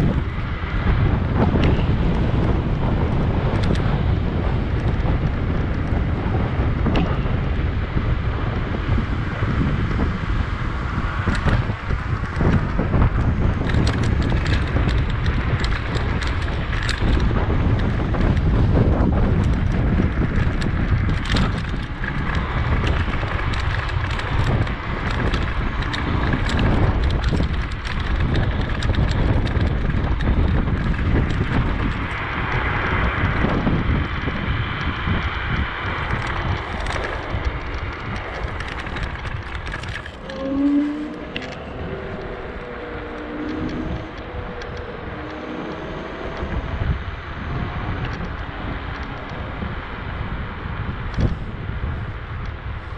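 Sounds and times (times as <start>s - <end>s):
bicycle clicks and rattles: 0.0s - 52.9s
wind buffeting microphone: 0.0s - 52.9s.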